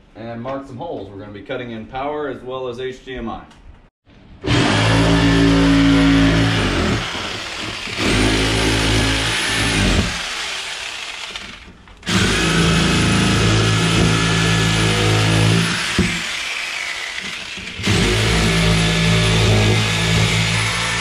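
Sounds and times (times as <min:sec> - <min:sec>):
rotary power tool whining: 0:04.4 - 0:21.0.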